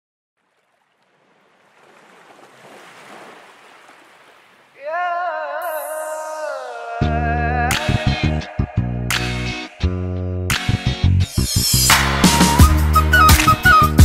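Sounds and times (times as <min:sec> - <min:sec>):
sea surf washing: 0:00.4 - 0:07.0
held wavering melodic note: 0:05.6 - 0:06.7.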